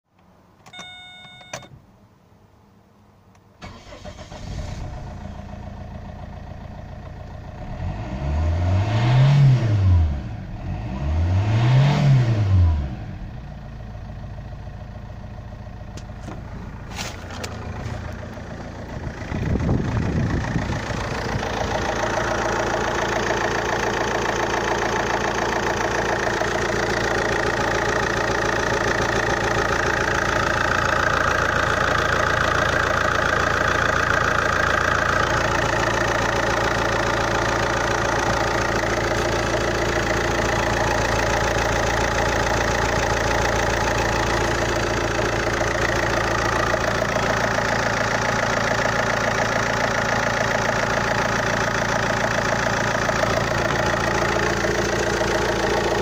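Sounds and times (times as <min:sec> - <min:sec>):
diesel engine starting and idling: 0:03.4 - 0:56.0
engine revving: 0:07.4 - 0:13.4, 0:17.5 - 0:56.0.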